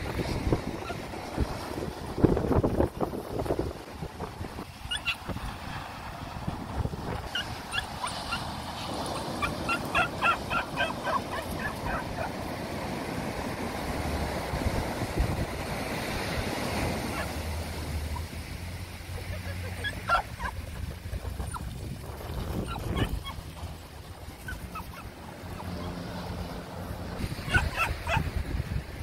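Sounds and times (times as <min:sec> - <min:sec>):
surf wash: 0:00.0 - 0:29.0
dog yapping: 0:04.9 - 0:05.2, 0:07.3 - 0:08.5, 0:09.2 - 0:12.4, 0:19.6 - 0:20.8, 0:22.6 - 0:23.4, 0:24.4 - 0:26.0, 0:27.4 - 0:28.3.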